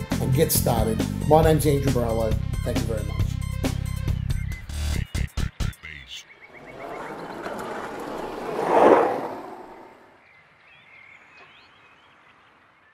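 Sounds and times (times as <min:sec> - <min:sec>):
skateboard wheels rolling on paving: 0:06.5 - 0:10.1.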